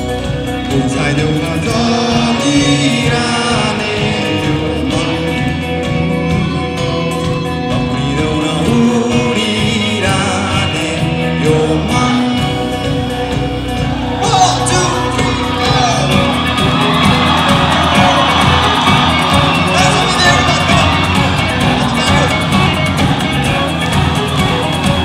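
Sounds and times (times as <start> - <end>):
acoustic guitar: 0.0 - 25.0
drums: 0.0 - 25.0
electric guitar: 0.0 - 25.0
person singing: 0.3 - 13.4.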